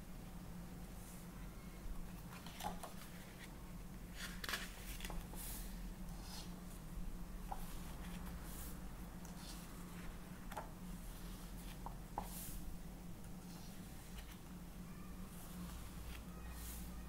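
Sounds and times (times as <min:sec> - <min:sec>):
pages rustling: 0:02.1 - 0:05.4.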